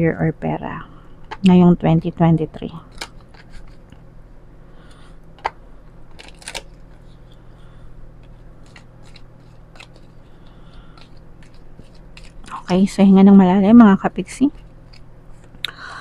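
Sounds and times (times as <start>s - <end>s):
low steady hum: 0.0s - 16.0s
cards being shuffled: 2.8s - 3.9s, 5.4s - 7.4s, 8.2s - 12.9s.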